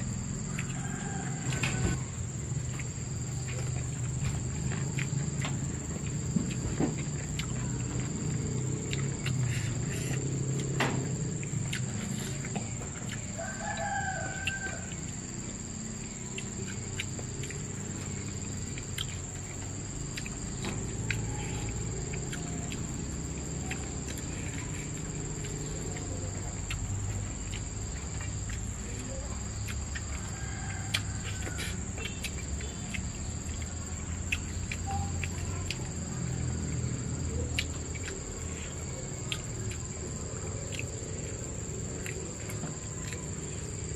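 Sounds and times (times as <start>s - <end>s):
rooster crowing: 0.0s - 2.2s, 13.0s - 15.9s, 20.8s - 23.8s, 29.0s - 32.2s.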